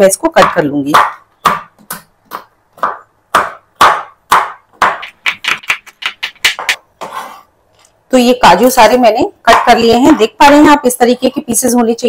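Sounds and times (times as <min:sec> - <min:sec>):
knife chopping on wooden board: 0:00.4 - 0:07.4.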